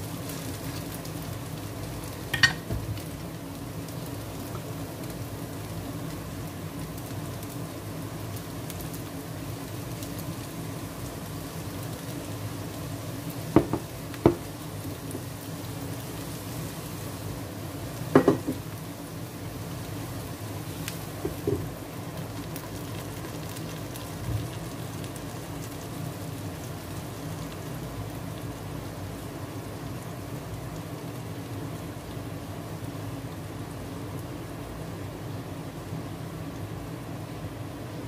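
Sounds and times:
omelette sizzling in oil: 0.0s - 38.0s
glass lid clinking on pan: 2.4s - 2.6s.

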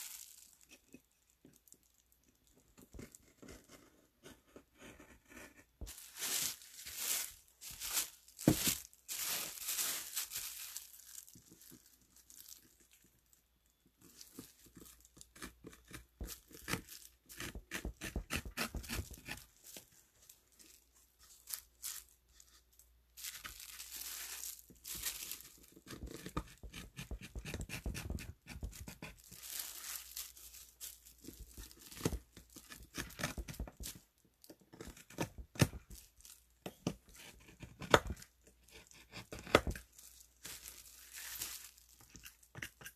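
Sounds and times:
carving tool scraping wood: 15.2s - 19.5s, 25.8s - 29.2s.

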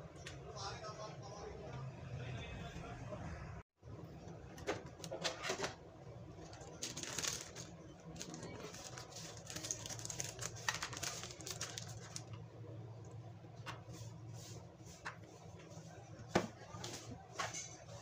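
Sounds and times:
low steady hum: 0.0s - 17.8s
plastic packet crinkling: 6.5s - 12.4s.

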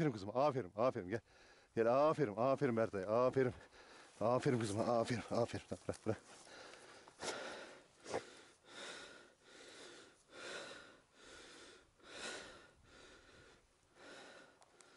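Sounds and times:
person breathing close to microphone: 1.3s - 1.8s, 3.6s - 4.2s, 6.4s - 14.9s.

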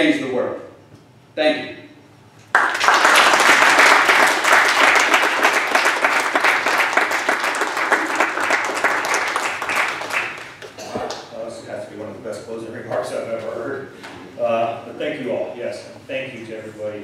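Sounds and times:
audience applauding: 2.5s - 11.2s.

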